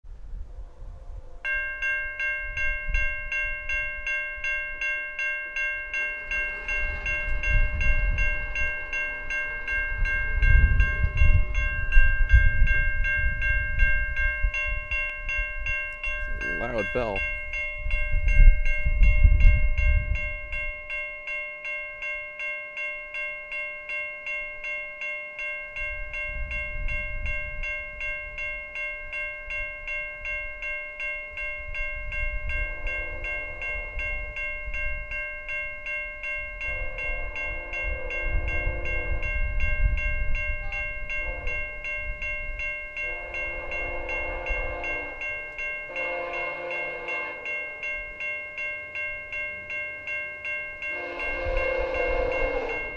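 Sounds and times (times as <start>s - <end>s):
train horn blasts: 0.1s - 1.6s, 36.7s - 39.7s, 40.5s - 41.9s, 43.0s - 45.3s, 45.9s - 47.8s, 50.9s - 52.9s
level crossing bell ringing: 1.4s - 52.9s.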